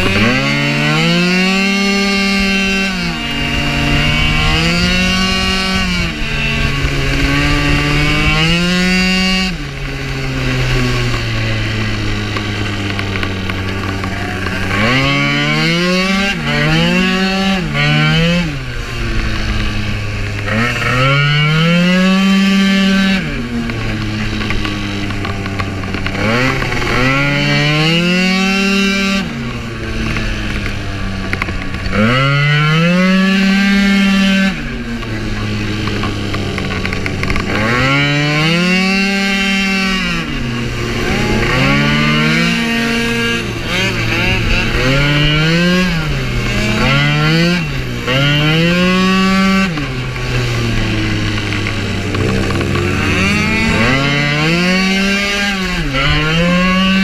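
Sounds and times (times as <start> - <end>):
scooter engine revving: 0.0 - 57.0
wind on microphone: 1.4 - 12.8.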